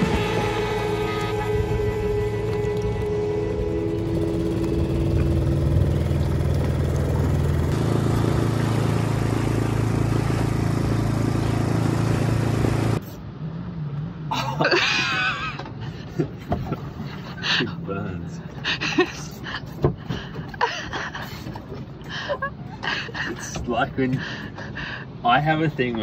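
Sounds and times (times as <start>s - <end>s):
outboard motor running: 0.0s - 13.0s
water rushing past: 0.0s - 13.0s.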